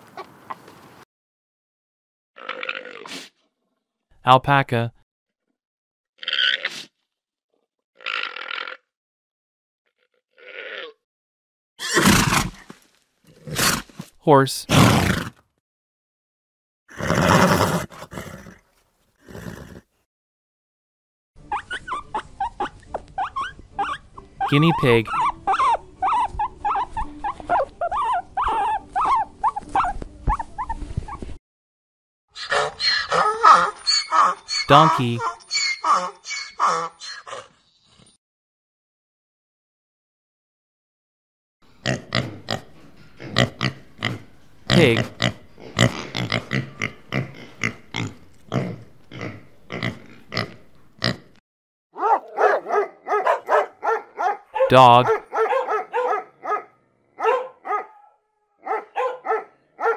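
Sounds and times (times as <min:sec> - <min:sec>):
pigs grunting: 0:08.0 - 0:08.9, 0:32.4 - 0:37.6, 0:41.8 - 0:51.4
guinea pig squeaking: 0:21.4 - 0:31.2, 0:32.4 - 0:37.4
dogs yipping: 0:21.4 - 0:31.4, 0:32.4 - 0:37.6, 0:52.0 - 0:59.9.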